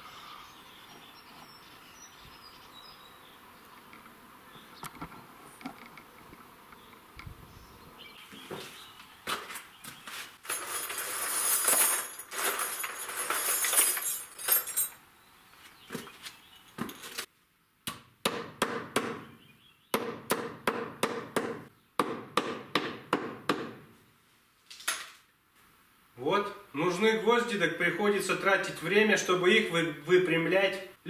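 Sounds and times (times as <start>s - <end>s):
nails rattling in a box: 10.4s - 15.0s.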